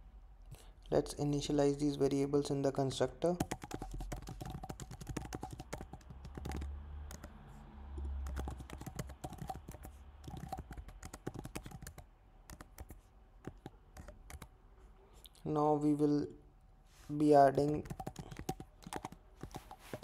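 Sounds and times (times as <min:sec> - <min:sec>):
keyboard key clicks: 0:03.4 - 0:07.4, 0:17.6 - 0:20.0.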